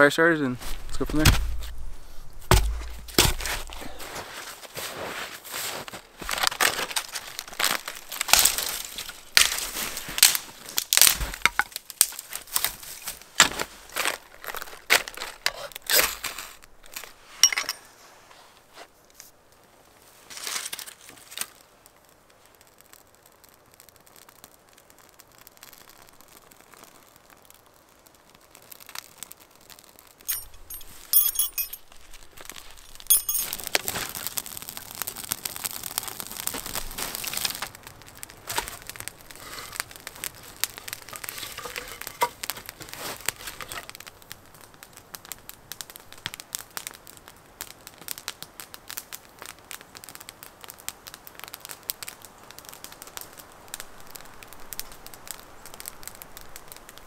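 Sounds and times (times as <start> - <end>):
fire crackling and rushing: 0.0 - 31.2, 31.8 - 57.0
kindling crinkling and snapping: 0.4 - 57.0
sharp clinks: 30.3 - 31.9, 32.8 - 33.7.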